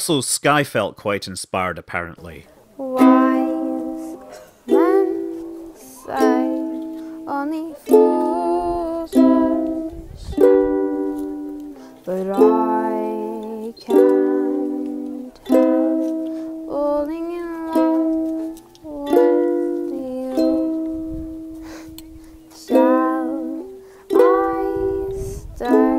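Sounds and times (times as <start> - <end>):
ukulele strummed slowly: 2.8 - 25.9.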